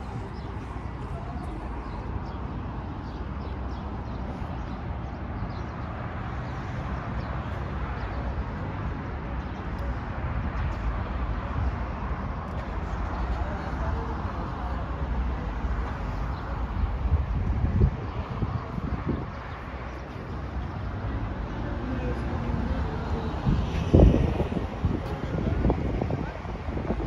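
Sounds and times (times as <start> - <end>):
road traffic: 0.0 - 27.0
wind rumble: 23.4 - 27.0.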